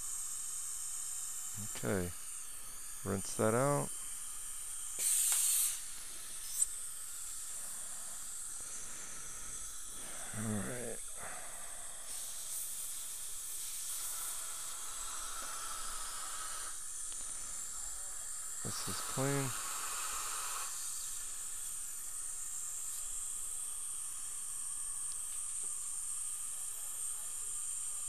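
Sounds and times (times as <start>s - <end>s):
steady background hiss: 0.0s - 28.0s
air-water syringe spraying: 4.4s - 11.0s, 11.9s - 17.6s, 18.4s - 26.0s.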